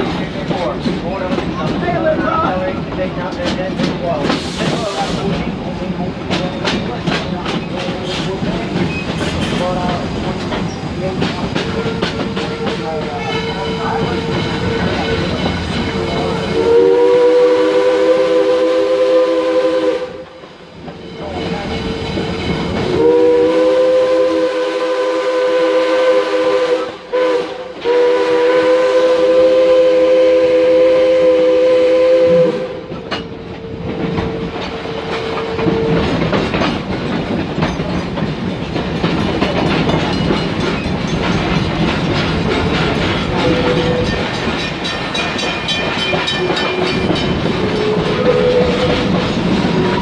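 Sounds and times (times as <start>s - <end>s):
train wheels clattering over rails: 0.0s - 31.6s, 32.3s - 50.0s
steam locomotive chime whistle: 11.8s - 20.3s, 21.1s - 32.9s, 43.4s - 49.1s.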